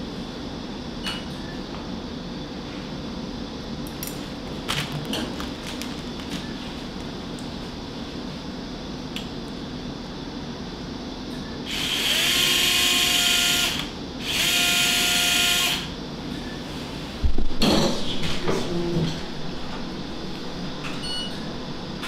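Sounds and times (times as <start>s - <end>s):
power drill whine: 11.7s - 15.9s.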